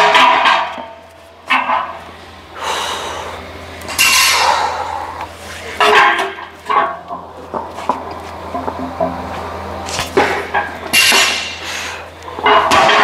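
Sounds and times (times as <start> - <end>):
effortful breathing: 2.5 - 3.5, 4.3 - 5.8, 11.5 - 12.2.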